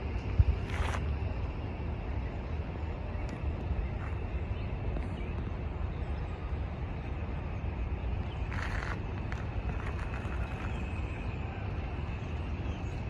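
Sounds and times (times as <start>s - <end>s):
distant traffic rumble: 0.0s - 13.0s.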